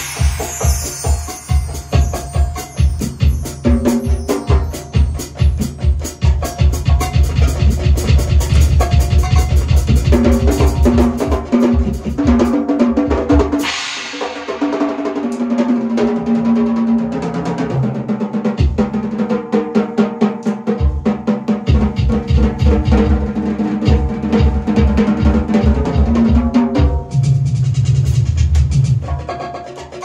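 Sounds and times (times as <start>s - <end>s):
bass drum strokes: 0.0s - 3.4s
cymbal crash: 0.0s - 6.1s, 13.6s - 15.8s
drum kit played fast: 0.0s - 30.0s.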